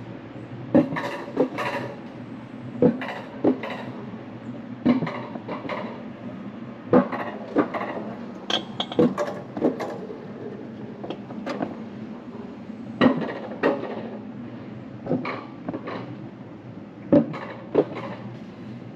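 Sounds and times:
metallic clanks and knocks: 7.0s - 10.0s.

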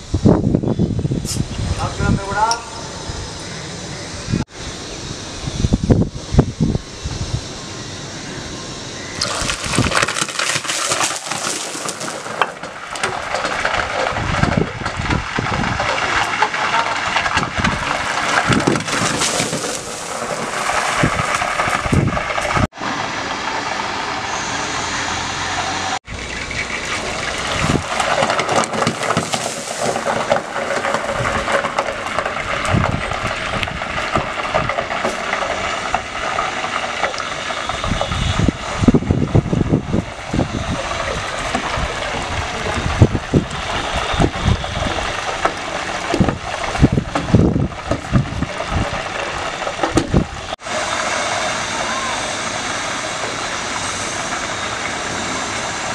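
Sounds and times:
hot oil sizzling and popping: 9.2s - 13.1s.

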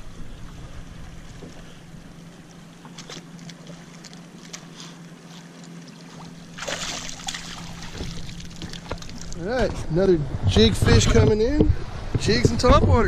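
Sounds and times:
water lapping: 0.0s - 10.3s
steady low hum: 0.0s - 13.0s
fish splashing at surface: 6.6s - 9.4s.

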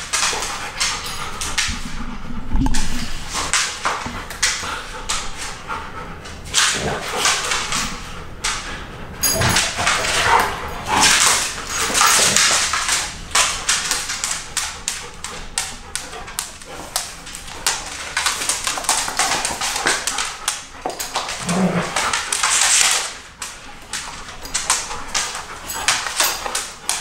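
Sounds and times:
dogs vocalising while play-fighting: 0.0s - 27.0s.

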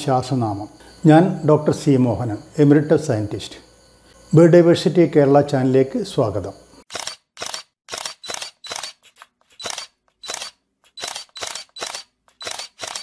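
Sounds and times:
camera shutter clicks: 6.9s - 13.0s.

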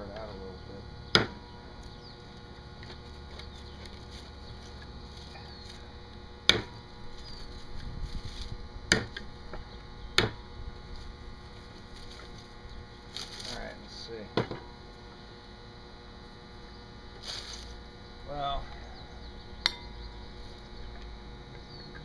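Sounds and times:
hatchet spike knocking coconut: 1.2s - 1.4s, 6.4s - 6.8s, 8.9s - 9.3s, 10.2s - 10.4s.

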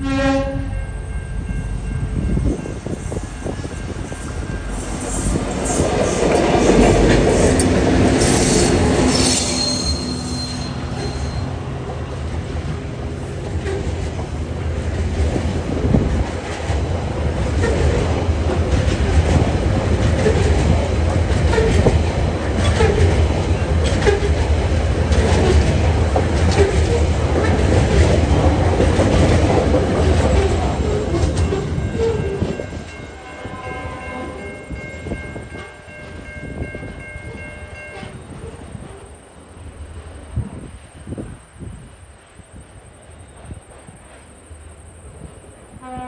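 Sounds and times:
diesel locomotives passing: 0.0s - 46.0s
train wheels clicking over rail joints: 2.9s - 9.5s, 13.4s - 32.7s
wheel squeal: 8.2s - 11.5s.

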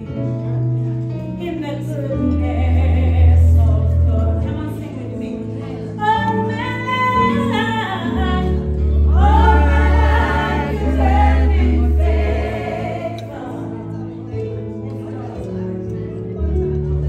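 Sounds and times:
choir singing with music: 8.5s - 14.2s.

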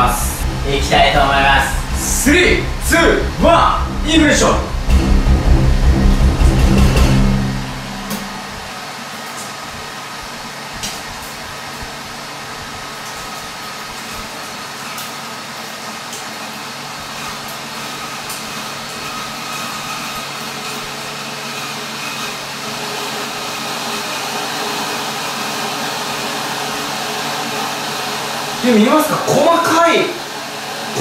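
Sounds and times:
fan air rushing: 0.0s - 15.0s
faint motor hum: 0.0s - 23.0s.

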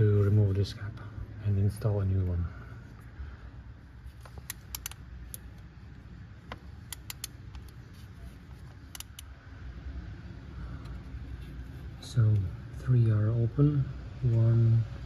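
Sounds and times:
ratchet clicks and taps: 4.2s - 5.5s, 6.9s - 7.7s, 8.9s - 9.3s.

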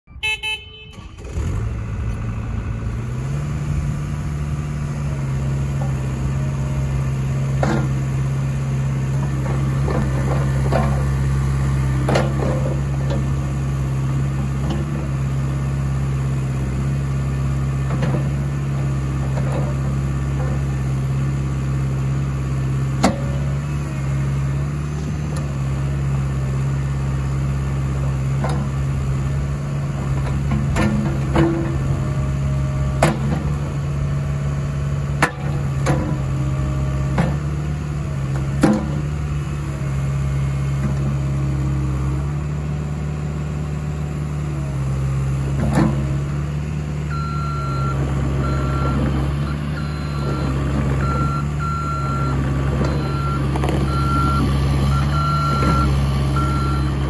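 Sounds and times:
excavator diesel engine running: 0.2s - 57.0s.

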